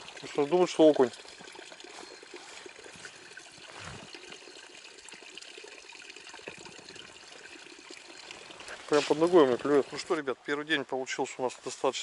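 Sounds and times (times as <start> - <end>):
river water trickling: 0.0 - 12.0.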